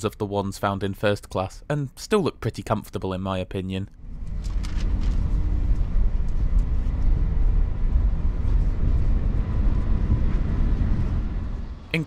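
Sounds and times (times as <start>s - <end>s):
train interior rumble: 4.0s - 12.0s.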